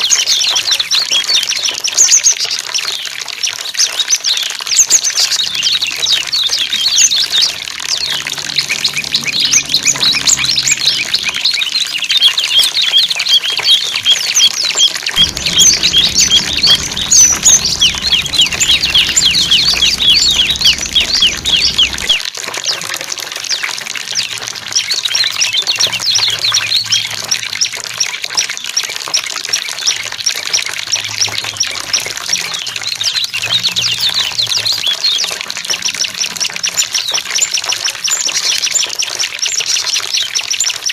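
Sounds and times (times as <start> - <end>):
water trickling: 0.0 - 40.9
small birds chirping: 2.8 - 22.2.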